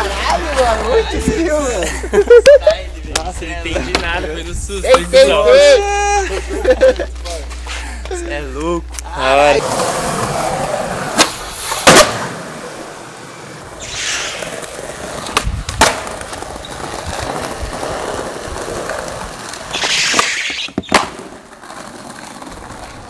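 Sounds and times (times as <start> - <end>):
skateboard wheels rolling on concrete: 0.0 - 23.0
skateboard slapping down: 10.2 - 12.6, 13.8 - 23.0
skateboard tail popping: 11.0 - 12.5, 13.7 - 23.0.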